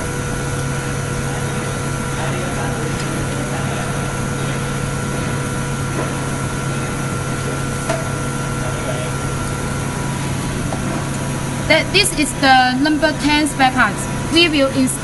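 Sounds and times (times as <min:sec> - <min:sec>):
machinery hum: 0:00.0 - 0:15.0.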